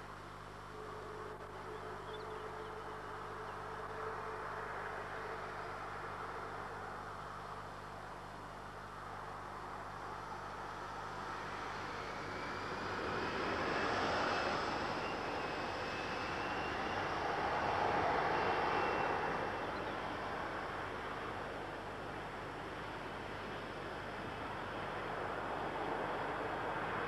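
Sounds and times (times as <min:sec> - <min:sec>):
faint high whine: 0:00.0 - 0:27.0
jet engine roar: 0:10.0 - 0:27.0.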